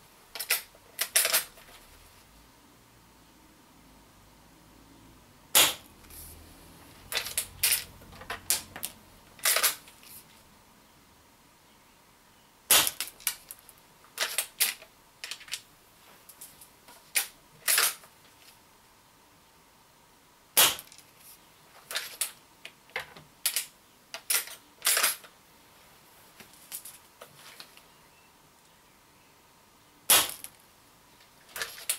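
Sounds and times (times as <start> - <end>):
air rifle sharp crack: 5.6 - 5.9, 12.7 - 13.0, 20.6 - 20.9, 30.1 - 30.5.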